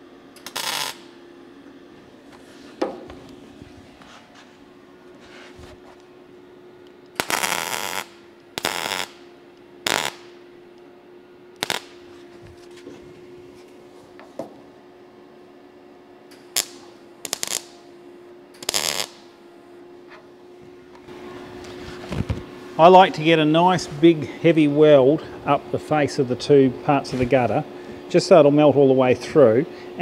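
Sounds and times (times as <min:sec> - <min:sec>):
steady hum: 0:00.0 - 0:30.0
welder arc bursts: 0:00.4 - 0:01.1, 0:07.1 - 0:10.4, 0:11.6 - 0:12.0, 0:16.4 - 0:17.8, 0:18.6 - 0:19.3.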